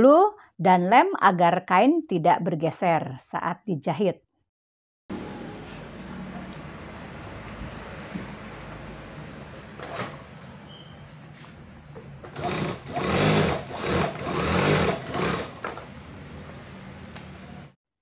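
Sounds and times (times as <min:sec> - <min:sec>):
sewing machine stitching leather: 0:09.8 - 0:10.2, 0:12.2 - 0:15.9.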